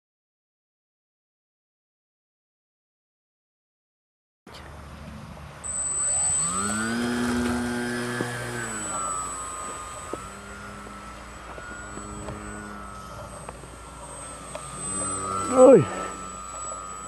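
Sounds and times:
model plane motor and propeller: 4.5s - 17.0s.

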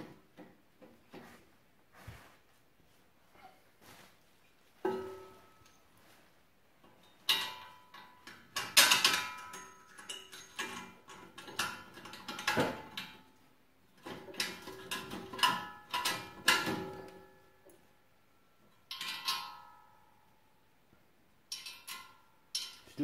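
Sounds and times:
metallic clanks of tools: 6.9s - 13.2s, 18.7s - 19.9s, 21.5s - 23.0s.

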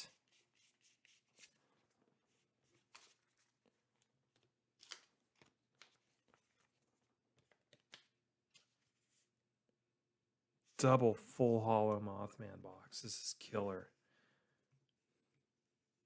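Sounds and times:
trading cards handled on a table: 0.1s - 9.8s.

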